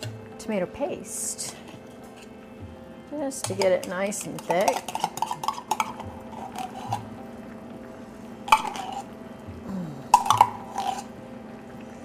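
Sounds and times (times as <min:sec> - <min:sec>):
steady low hum: 0:00.0 - 0:12.0
metal utensil scraping tin can: 0:03.4 - 0:07.1, 0:10.3 - 0:11.1.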